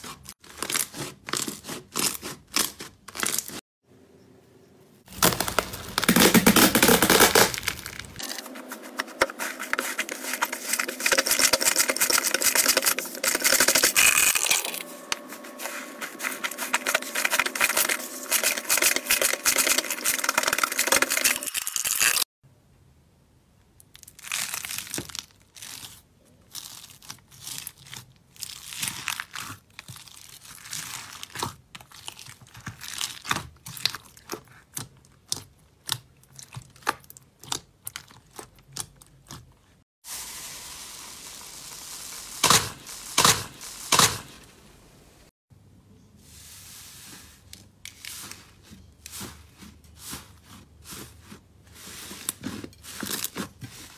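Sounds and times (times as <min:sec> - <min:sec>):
slime crackling and popping: 0:05.1 - 0:08.4.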